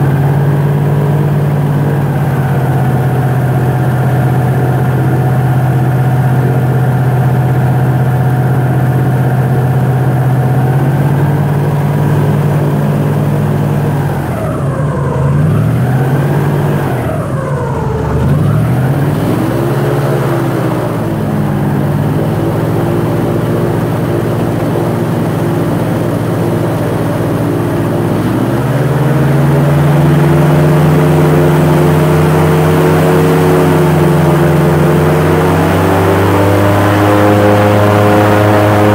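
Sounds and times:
airboat engine and propeller: 0:00.0 - 0:38.9.

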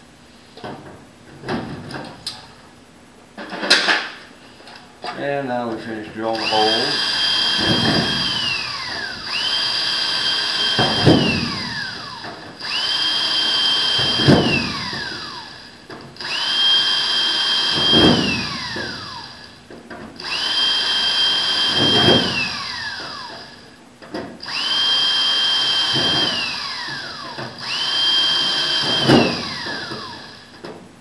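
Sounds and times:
cordless drill boring into metal: 0:06.3 - 0:15.6, 0:16.2 - 0:19.5, 0:20.2 - 0:23.5, 0:24.4 - 0:30.5.

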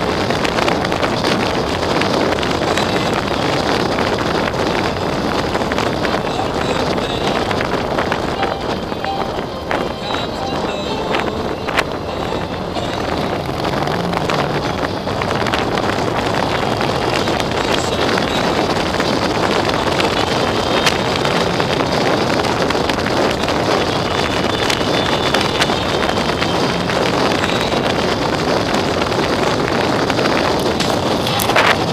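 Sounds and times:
wind buffeting microphone: 0:00.0 - 0:31.9
motorcycle engine running: 0:11.8 - 0:31.9.

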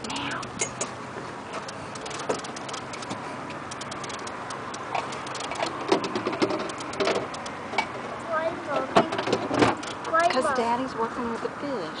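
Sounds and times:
water noise: 0:00.0 - 0:08.2
wind: 0:00.0 - 0:12.0
fishing reel clicking: 0:01.7 - 0:03.1, 0:03.7 - 0:05.8, 0:06.6 - 0:07.6.

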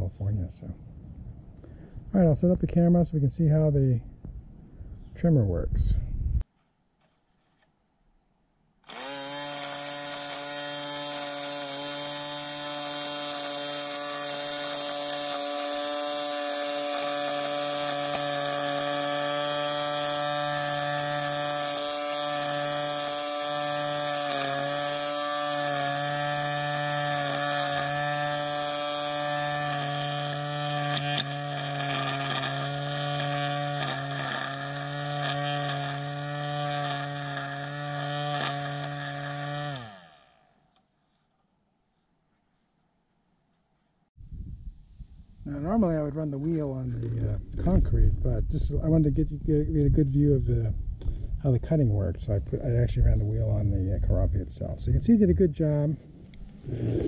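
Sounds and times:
string trimmer motor whine: 0:08.8 - 0:40.6.

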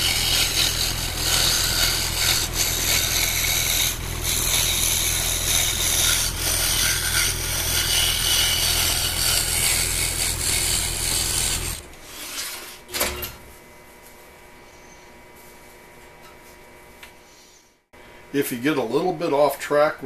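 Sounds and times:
scroll saw cutting wood: 0:00.0 - 0:12.7.

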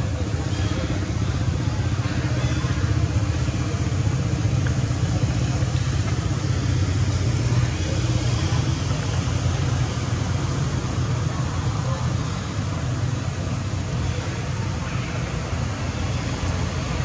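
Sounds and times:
engine idling: 0:00.0 - 0:17.0.

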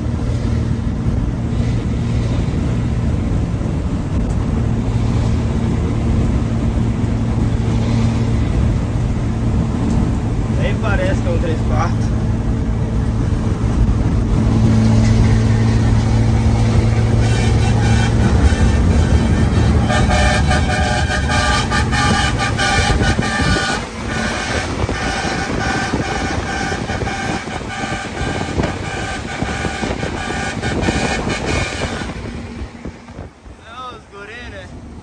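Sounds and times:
engine and road noise: 0:00.0 - 0:35.0
truck air horns blowing: 0:15.0 - 0:32.6.

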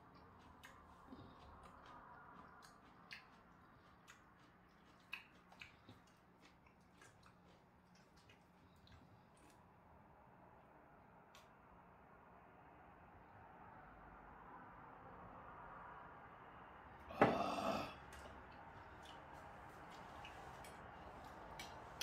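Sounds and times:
quiet chewing: 0:00.0 - 0:09.8, 0:17.3 - 0:22.0
low room hum: 0:00.0 - 0:22.0.

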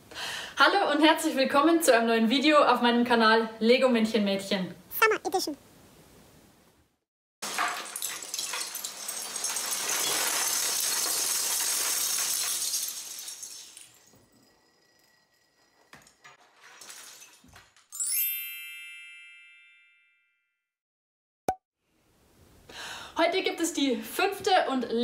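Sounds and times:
toy bricks clattering on floor: 0:16.0 - 0:18.0
bright chime: 0:18.0 - 0:20.1.

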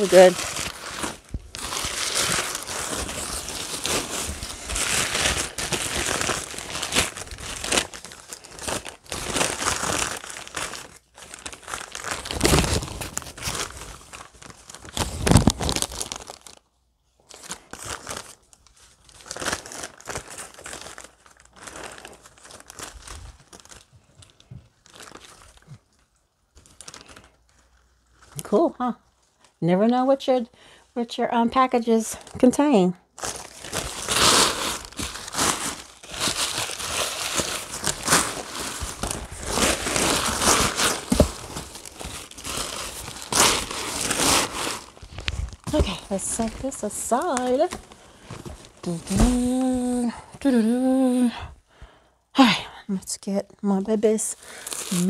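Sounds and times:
newspaper rustling and crinkling: 0:00.0 - 0:16.6, 0:17.2 - 0:25.8, 0:33.2 - 0:50.1.

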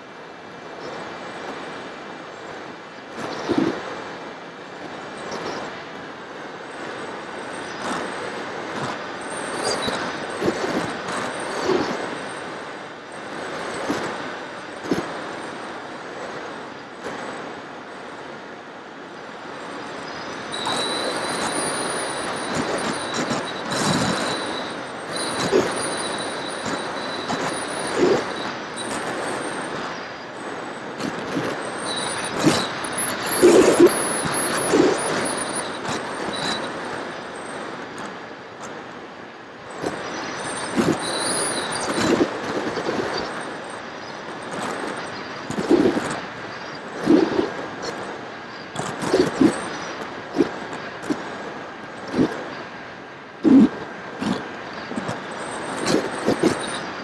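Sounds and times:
wind rushing over camera: 0:00.0 - 0:57.0
high electric motor whine: 0:19.7 - 0:37.8.

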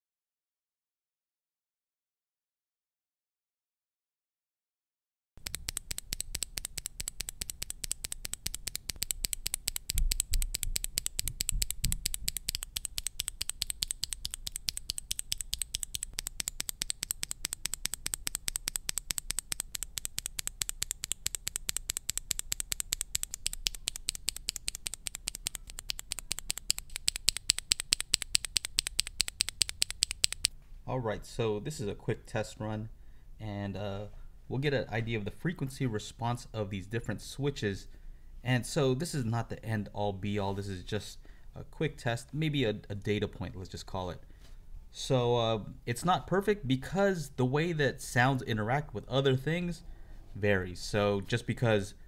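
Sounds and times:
mechanical keyboard key clacks: 0:05.4 - 0:30.5.

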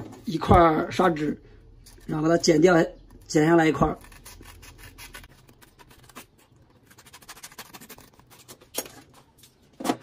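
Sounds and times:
scissors cutting sandpaper: 0:03.9 - 0:08.7.

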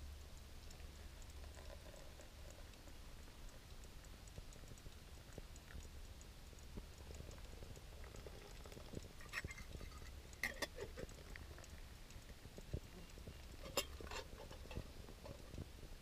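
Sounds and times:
cookware clicks and scrapes: 0:09.2 - 0:11.1, 0:13.6 - 0:15.4.

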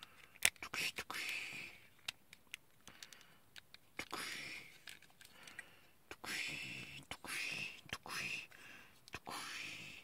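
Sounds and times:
plastic toy joints clicking: 0:00.0 - 0:04.2.

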